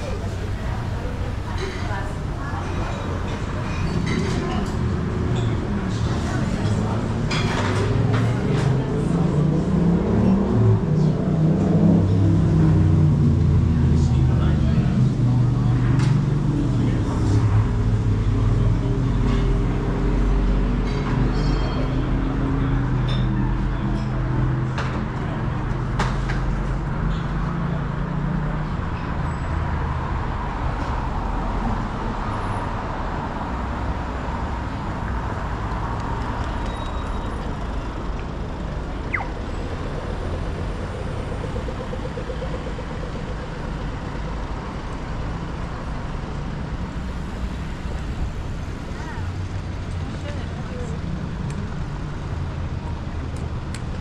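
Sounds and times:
hum of road traffic: 0.0 - 54.0
vehicle engine: 0.0 - 54.0
high chirp: 39.1 - 40.0.

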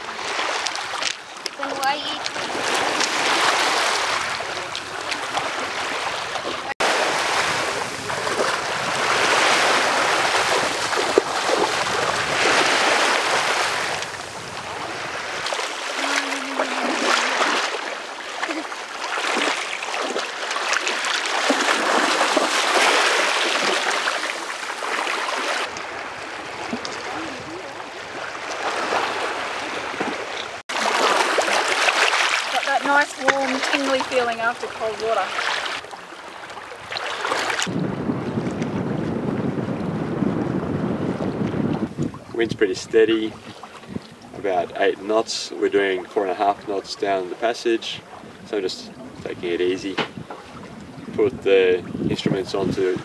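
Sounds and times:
water splashing around legs: 0.0 - 37.8
wavelets washing over pebbles: 0.0 - 38.7.

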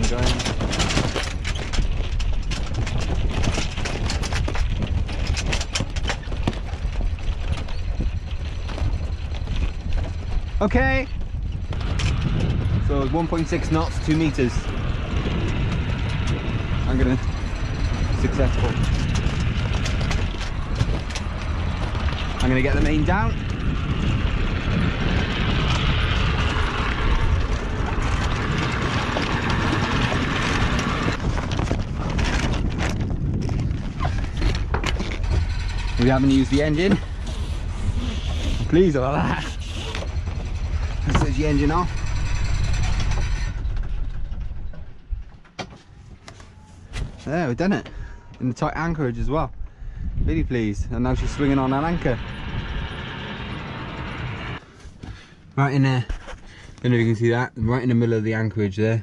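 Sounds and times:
anchor chain rattling out: 0.0 - 46.8
sail cloth rustling and flapping: 0.0 - 47.8
low rumble: 0.0 - 55.3
wind buffeting microphone: 0.0 - 56.7.

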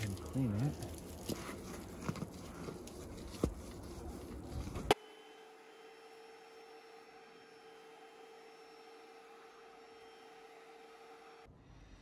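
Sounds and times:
brush scrubbing wet wood: 0.0 - 5.0.

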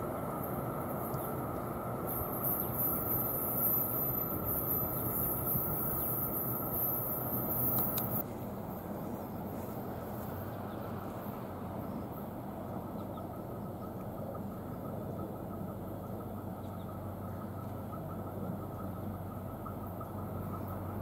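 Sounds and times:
faint hum: 0.0 - 21.0
low outdoor rumble: 0.0 - 21.0.

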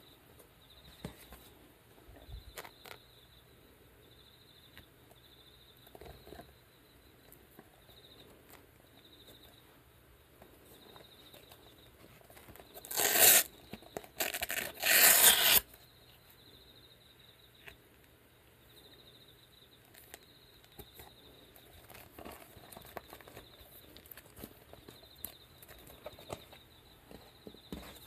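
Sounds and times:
velcro ripping apart: 12.8 - 13.5, 14.2 - 15.7.

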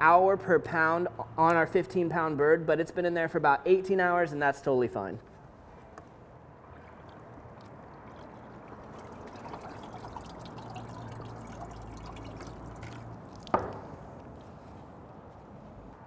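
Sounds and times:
brine dripping and trickling: 6.4 - 14.7.

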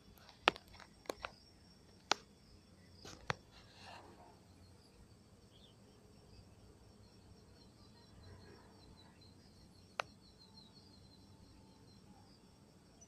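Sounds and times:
high insect chirring: 0.0 - 13.0.

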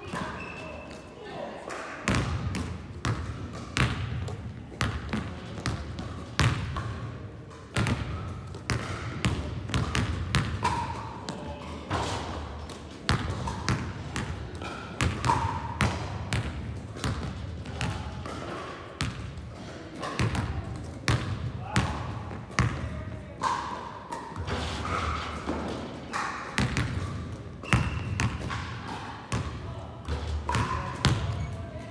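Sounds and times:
basketballs bouncing on floor: 2.1 - 7.1, 7.7 - 19.4, 20.1 - 23.6, 26.6 - 31.8.

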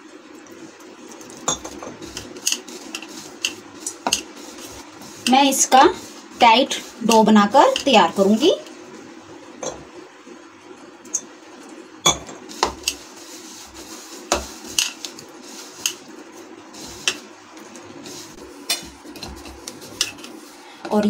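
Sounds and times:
dough being kneaded by hand: 1.0 - 8.8, 12.4 - 21.0.

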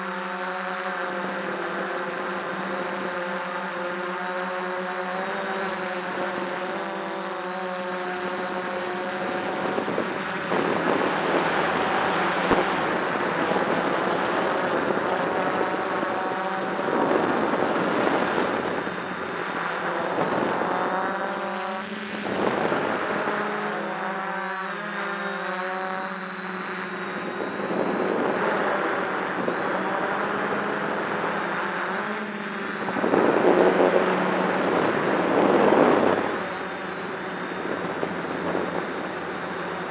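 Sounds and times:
drone motors humming: 0.0 - 39.9
wind noise on microphone: 0.0 - 39.9.

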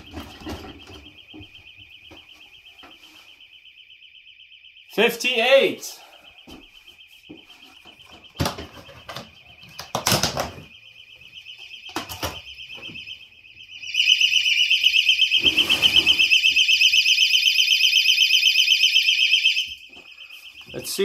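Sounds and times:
knocks and rustling: 0.0 - 3.2, 6.5 - 10.8
personal alarm shrieking: 0.0 - 21.0.

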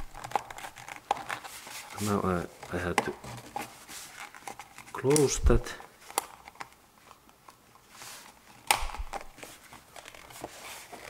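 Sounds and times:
tape measure scraping and rustling: 0.0 - 5.4, 9.4 - 11.0.

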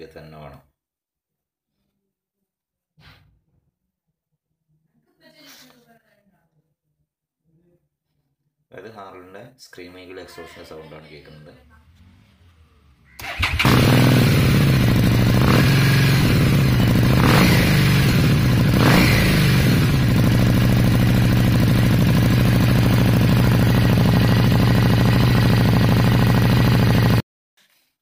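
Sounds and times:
motorcycle engine revving and idling: 11.9 - 27.2.

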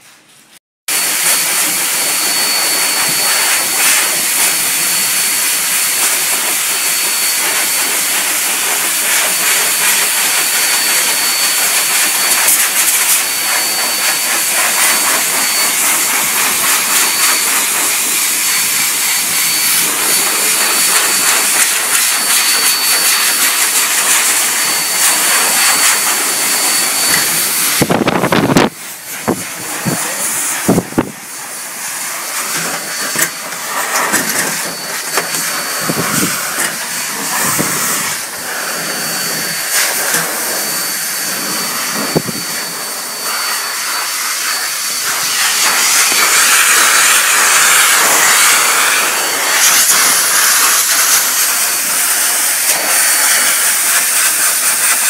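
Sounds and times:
electric blower rushing air: 0.0 - 55.0.

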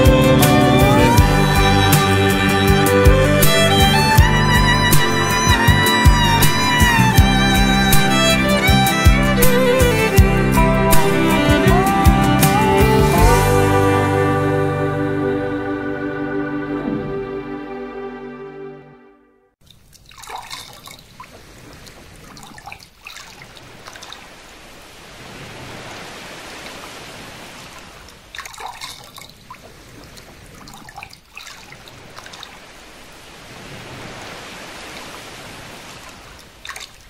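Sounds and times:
sharp water splashes: 19.6 - 37.0
water trickling and dripping: 19.6 - 37.0.

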